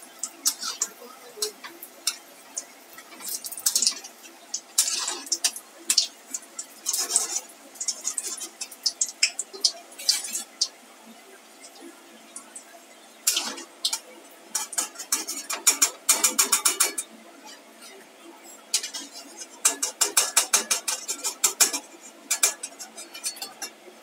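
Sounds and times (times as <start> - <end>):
spatula scraping metal pan: 0.4 - 2.2, 4.8 - 6.1, 6.9 - 8.7, 10.0 - 10.6, 13.3 - 23.9.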